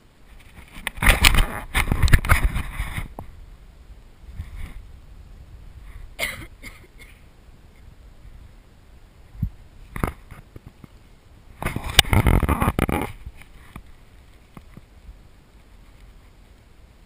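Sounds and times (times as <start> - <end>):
rubbing and rustling: 0.2 - 3.3.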